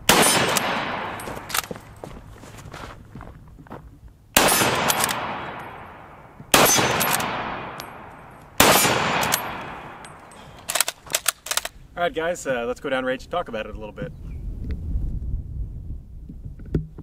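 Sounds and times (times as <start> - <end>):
rifle shots echoing: 0.0 - 2.0, 4.4 - 11.7
rifle bolt clicks: 1.4 - 1.8, 4.8 - 5.7, 6.8 - 11.8.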